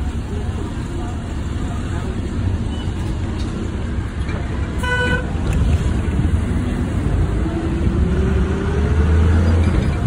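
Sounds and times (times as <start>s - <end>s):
traffic rumble: 0.0s - 10.0s
vehicle horn beep: 4.8s - 5.3s
vehicle engine accelerating: 6.7s - 10.0s.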